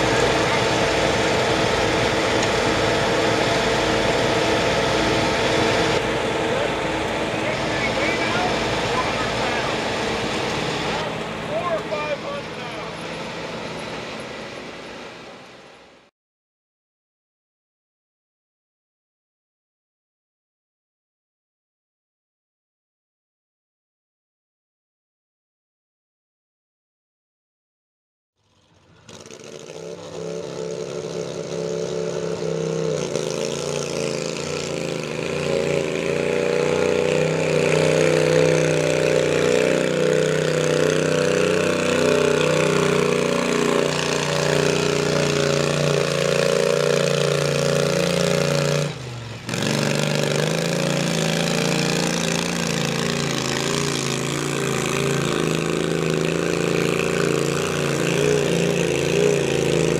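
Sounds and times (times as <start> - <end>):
garden tractor engine running hard: 0.0 - 15.8, 28.4 - 59.9.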